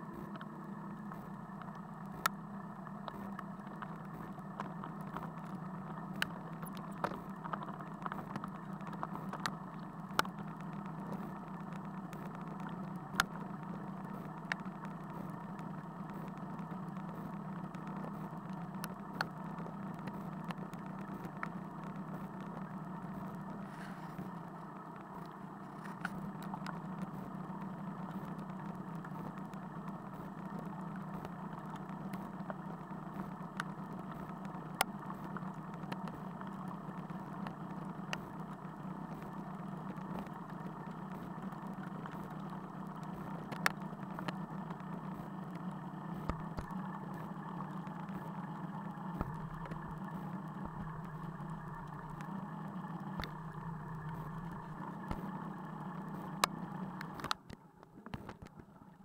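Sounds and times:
raindrops ticking on camera: 0.0 - 59.0.

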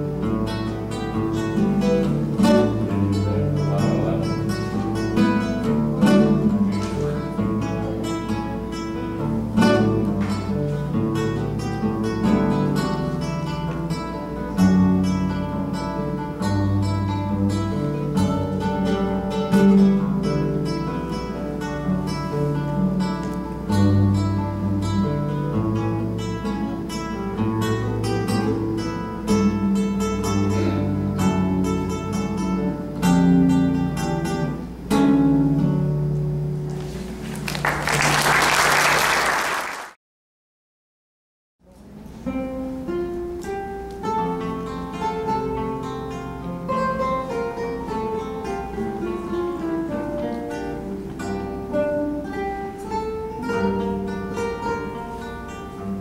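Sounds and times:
solo classical guitar: 0.0 - 37.8, 41.6 - 56.0
classical guitar ensemble: 0.0 - 39.8, 41.6 - 56.0
applause: 37.0 - 40.0.

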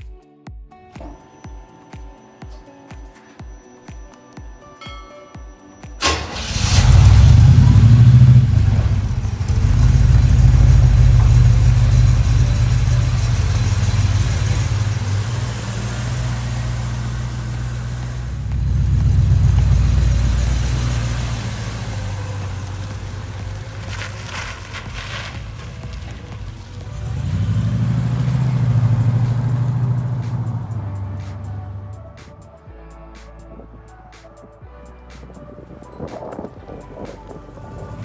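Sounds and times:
truck engine running: 6.0 - 32.6, 35.7 - 38.0.

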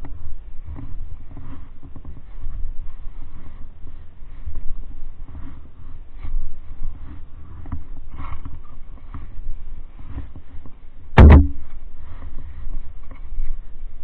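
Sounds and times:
loud sharp knock: 11.2 - 11.6.

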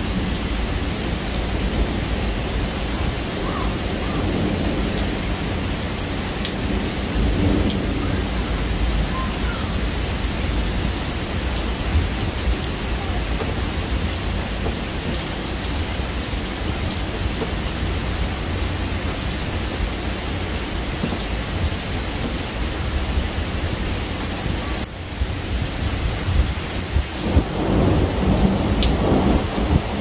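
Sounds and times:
steady rain: 0.0 - 30.0
thunder rumbling: 0.0 - 30.0.

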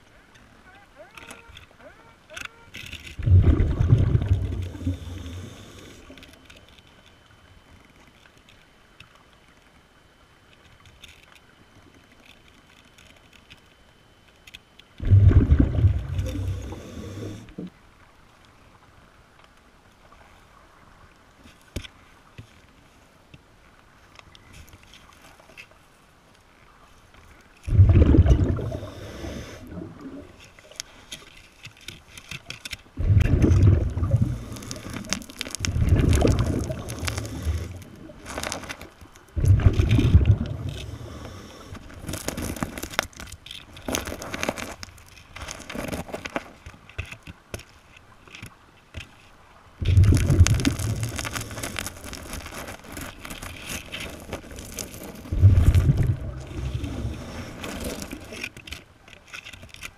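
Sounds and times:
underwater exhaust bubbles: 3.2 - 6.3, 15.0 - 17.8, 27.7 - 30.4, 33.0 - 38.6, 39.3 - 42.9, 49.8 - 52.3, 55.2 - 58.4
hand scraping sand and pebbles: 16.0 - 17.5, 33.1 - 47.3, 49.8 - 58.8.

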